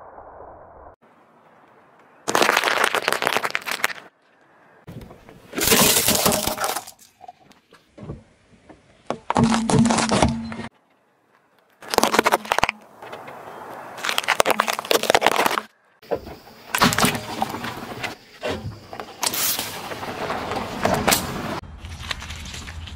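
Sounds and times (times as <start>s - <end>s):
tyre crushing toys and food: 2.3s - 4.1s, 5.4s - 7.2s, 9.1s - 10.4s, 11.8s - 12.9s, 14.0s - 15.7s, 16.7s - 22.9s.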